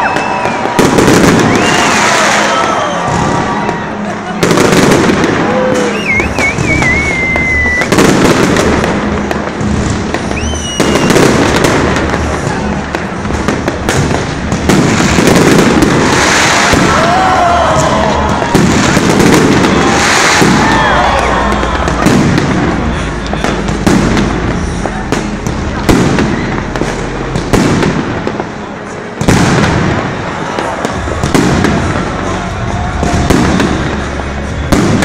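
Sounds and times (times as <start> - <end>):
whistling firework tones: 0.0 - 8.6, 10.2 - 12.9, 15.0 - 27.0
firework crackle: 0.0 - 35.0.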